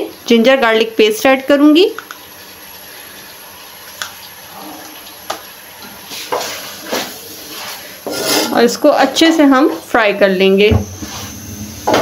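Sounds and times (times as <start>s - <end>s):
frying sizzle: 0.0s - 12.0s
spatula scraping pan: 6.1s - 8.9s.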